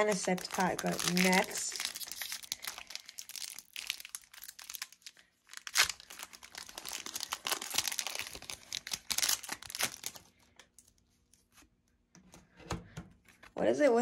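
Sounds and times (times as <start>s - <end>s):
foil wrapper crinkling and tearing: 0.0s - 11.0s.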